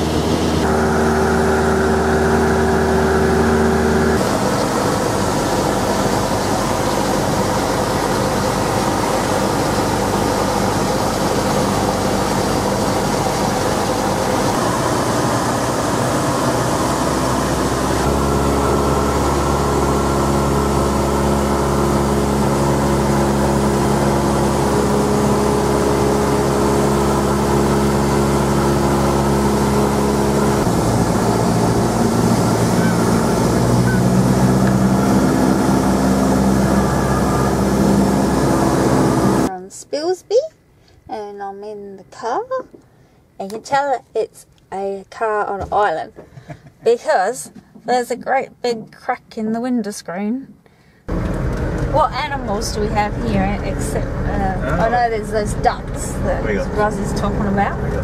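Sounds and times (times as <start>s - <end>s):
propeller plane engine droning: 0.0s - 39.5s, 51.1s - 58.0s.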